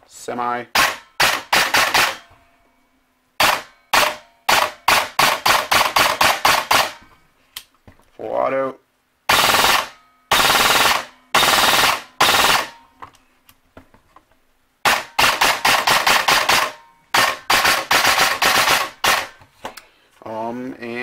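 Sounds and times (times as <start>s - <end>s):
airsoft gun firing bursts: 0.8s - 2.2s, 3.4s - 7.0s, 9.3s - 12.8s, 14.8s - 19.4s.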